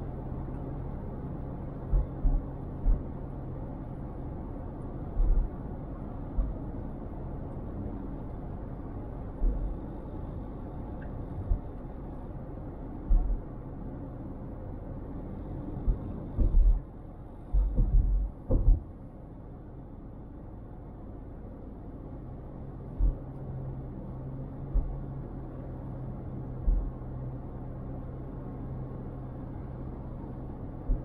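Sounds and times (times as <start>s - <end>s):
car driving rumble: 0.0s - 19.3s, 21.1s - 31.0s
steady low hum: 0.0s - 31.0s
short low thumps: 13.1s - 13.4s, 15.8s - 16.8s, 17.5s - 18.9s.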